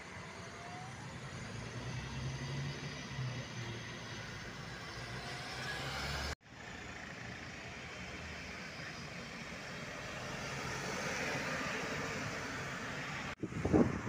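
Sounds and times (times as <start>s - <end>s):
minibus engine passing: 0.0s - 14.0s
car passing close: 0.6s - 6.4s.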